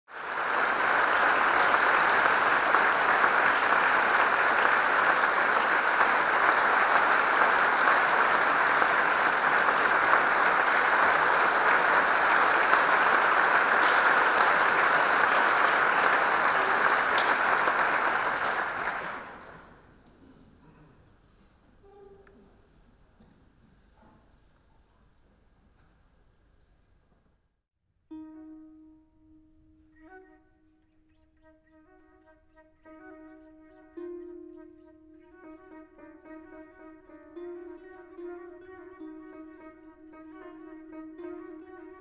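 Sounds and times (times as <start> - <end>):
audience applauding: 0.1 - 19.9.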